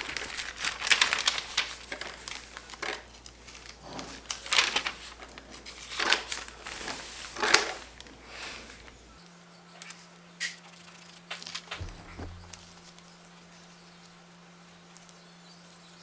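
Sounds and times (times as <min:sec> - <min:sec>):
paper pages rustling: 0:00.0 - 0:09.0, 0:10.7 - 0:13.0.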